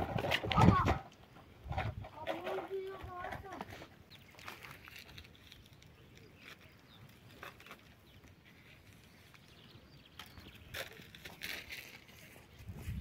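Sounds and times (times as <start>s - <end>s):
crunching: 3.4s - 13.0s.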